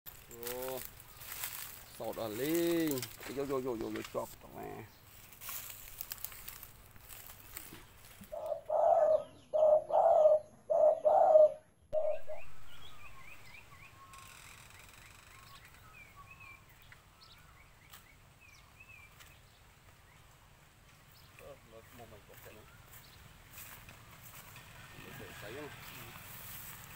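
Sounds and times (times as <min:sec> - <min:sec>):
small birds chirping: 0:00.1 - 0:26.9
dove cooing: 0:08.3 - 0:13.0.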